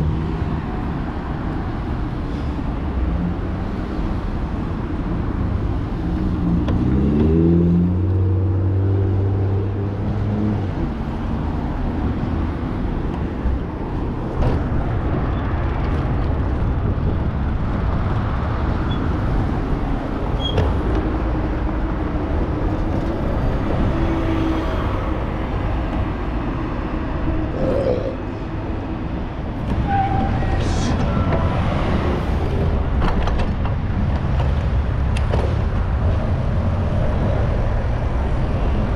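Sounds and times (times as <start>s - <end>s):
street traffic engines: 0.0s - 38.9s
vehicle engine accelerating: 6.1s - 10.8s.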